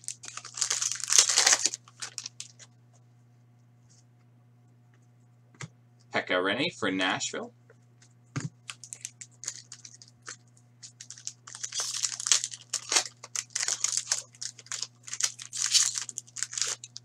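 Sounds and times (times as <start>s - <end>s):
wrapper crinkling and rustling: 0.0s - 2.7s, 8.6s - 17.0s.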